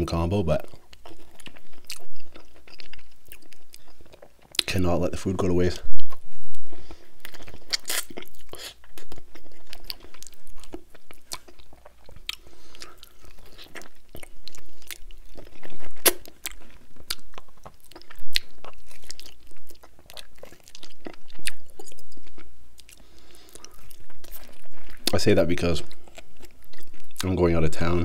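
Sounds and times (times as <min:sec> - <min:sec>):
man chewing and biting meat: 0:00.7 - 0:04.7, 0:06.0 - 0:25.2, 0:25.8 - 0:27.2.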